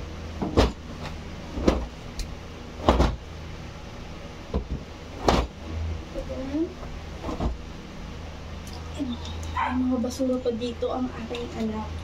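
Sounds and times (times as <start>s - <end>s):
steady low hum: 0.0s - 12.0s
clothes flapping snaps: 0.4s - 3.2s, 4.5s - 5.6s, 7.2s - 7.6s.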